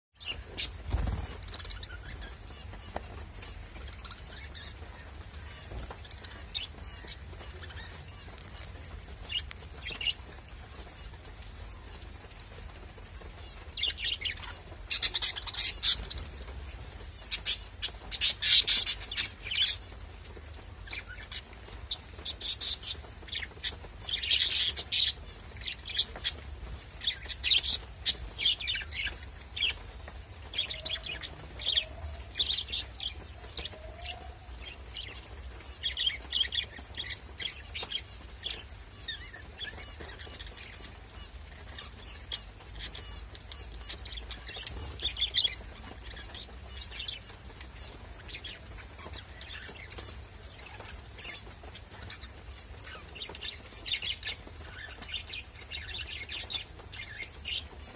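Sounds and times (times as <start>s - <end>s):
budgerigars chirping: 0.2s - 10.2s.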